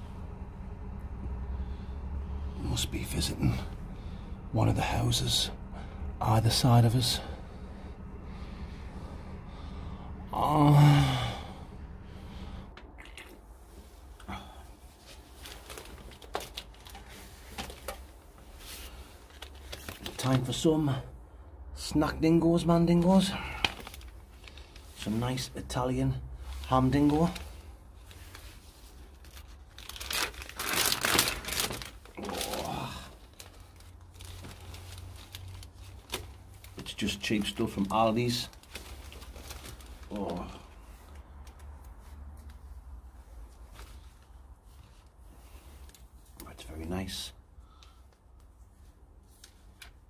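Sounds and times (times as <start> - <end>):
low steady hum: 0.0 - 50.0
plastic packaging rustling: 15.0 - 20.6, 23.4 - 25.1, 26.6 - 42.4
plastic packet tearing and crinkling: 29.2 - 36.3.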